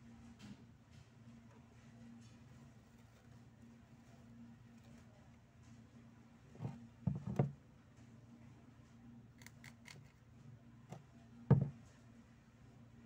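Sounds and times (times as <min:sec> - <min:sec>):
soft knocks: 0:11.5 - 0:11.8
thump: 0:11.5 - 0:11.8.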